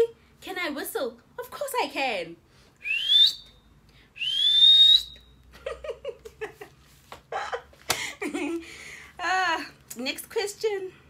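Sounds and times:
woman whistling: 0:02.8 - 0:05.4.

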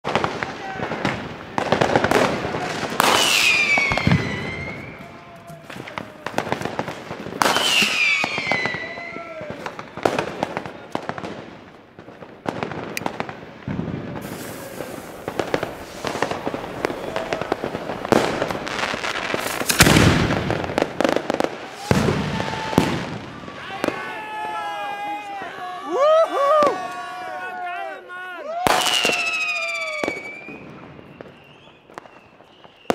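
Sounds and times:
fireworks crackling bangs: 0:00.0 - 0:25.7, 0:26.3 - 0:27.5, 0:28.5 - 0:32.9
firework mortar deep boom: 0:00.1 - 0:24.0
firework falling whistles: 0:00.2 - 0:10.7, 0:12.8 - 0:24.2, 0:28.6 - 0:32.9.

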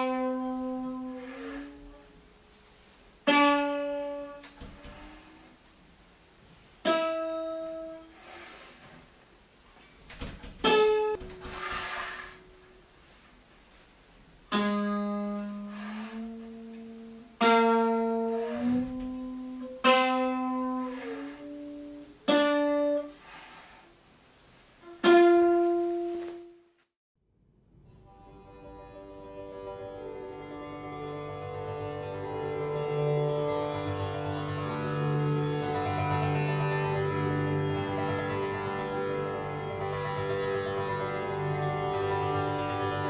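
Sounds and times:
plucked string notes: 0:00.0 - 0:05.6, 0:06.8 - 0:08.1, 0:14.5 - 0:23.2, 0:24.8 - 0:26.5, 0:27.8 - 0:43.0.

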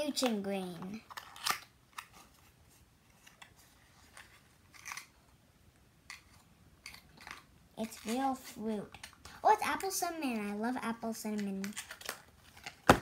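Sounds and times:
packaging clicks and crinkles: 0:01.0 - 0:02.4, 0:03.2 - 0:05.2, 0:11.4 - 0:13.0.

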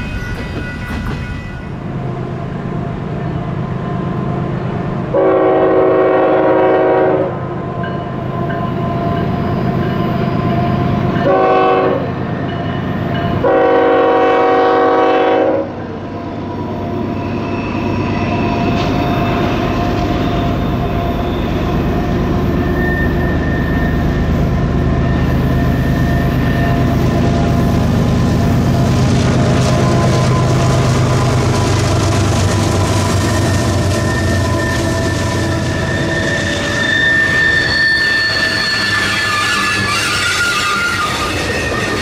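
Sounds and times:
train running: 0:00.0 - 0:42.0
locomotive air horn blasts: 0:05.1 - 0:07.4, 0:11.2 - 0:12.2, 0:13.4 - 0:15.8.

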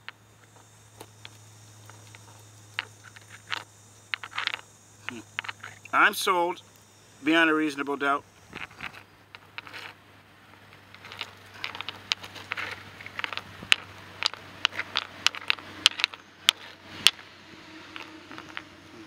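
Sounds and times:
gritty scraping: 0:00.0 - 0:06.6, 0:07.2 - 0:19.0
stone knocking on rock: 0:10.8 - 0:17.2.

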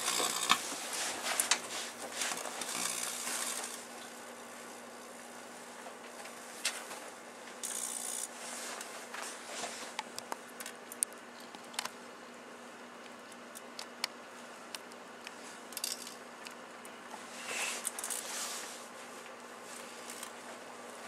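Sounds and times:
electrical arcing snaps and crackles: 0:00.0 - 0:04.4, 0:05.0 - 0:12.0
microwave oven hum: 0:00.0 - 0:21.0.

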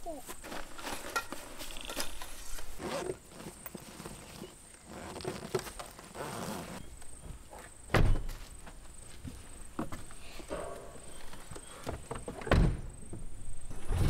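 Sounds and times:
loud thump: 0:07.9 - 0:08.3, 0:12.5 - 0:12.9.

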